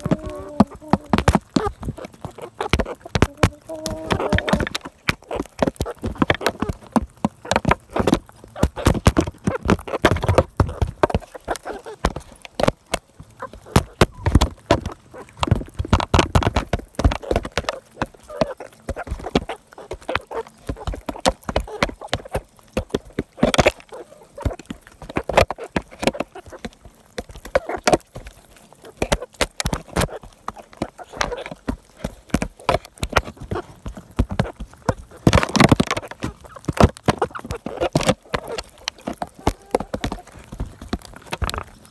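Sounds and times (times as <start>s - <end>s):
chicken beaks tapping: 0.0s - 41.9s
chickens clucking: 0.0s - 41.9s.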